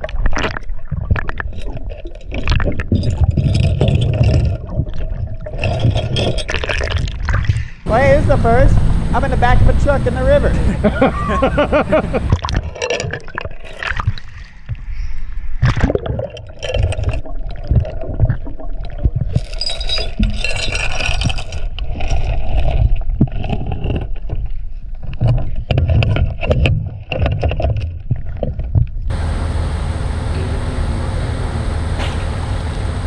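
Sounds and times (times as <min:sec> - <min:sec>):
underwater bubbling: 0:00.0 - 0:08.1, 0:11.6 - 0:20.4
chain clinking and scraping on metal: 0:01.5 - 0:04.8, 0:05.4 - 0:07.2, 0:12.6 - 0:14.0, 0:19.4 - 0:24.6
muffled rumble: 0:07.9 - 0:12.4, 0:28.7 - 0:33.0.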